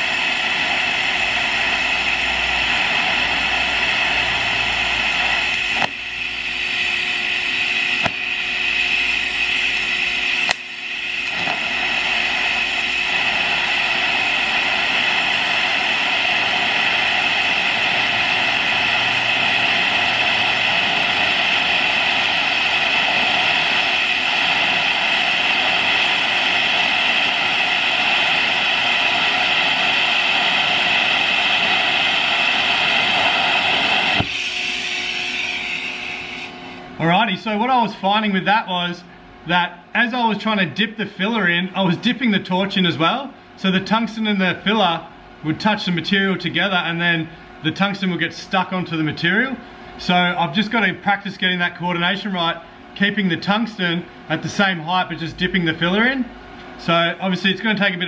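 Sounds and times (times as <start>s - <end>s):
welding arc hissing: 0.0s - 37.1s
welder click: 5.0s - 6.1s, 6.7s - 36.0s.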